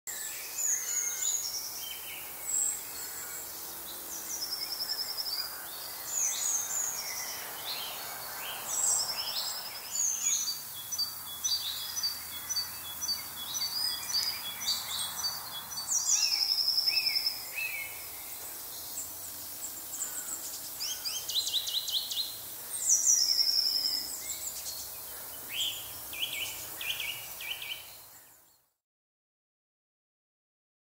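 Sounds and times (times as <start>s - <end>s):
songbirds singing: 0.1s - 28.7s
distant road traffic hum: 1.6s - 28.2s.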